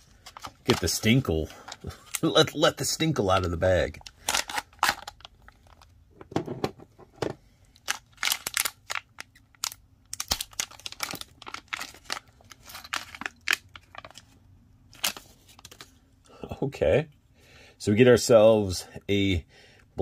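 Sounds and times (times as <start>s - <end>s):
foil packaging crinkling: 0.0s - 5.9s, 7.8s - 16.0s.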